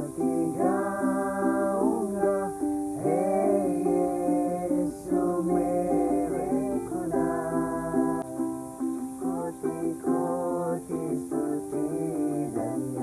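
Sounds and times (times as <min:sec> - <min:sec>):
group of people singing: 0:00.0 - 0:13.0
ukulele: 0:00.0 - 0:13.0.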